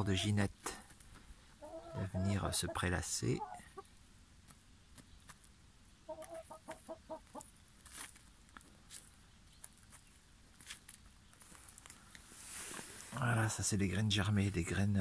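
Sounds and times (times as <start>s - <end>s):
hen clucking softly: 1.6s - 4.0s, 6.0s - 7.5s
hen scratching and pecking: 3.4s - 13.2s.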